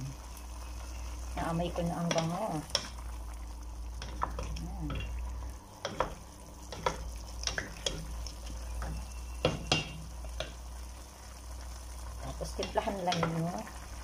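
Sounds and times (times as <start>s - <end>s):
spatula scraping and knocking pot: 4.0s - 5.2s, 5.8s - 10.6s, 12.6s - 13.5s.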